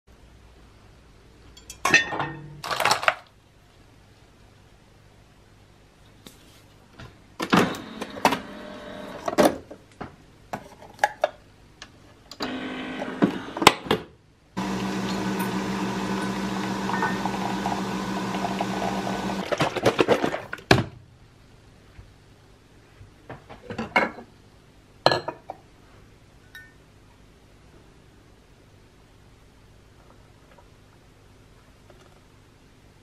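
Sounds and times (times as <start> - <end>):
coffee machine motor hum: 7.6 - 9.3, 12.4 - 13.7, 14.6 - 19.4.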